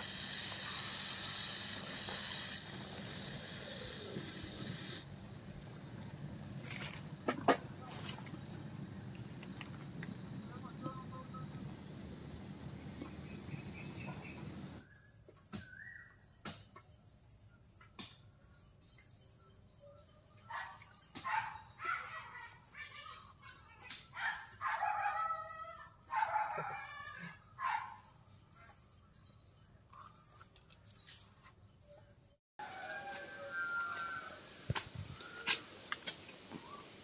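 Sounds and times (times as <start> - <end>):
birds chirping: 7.8 - 17.8, 18.6 - 32.4.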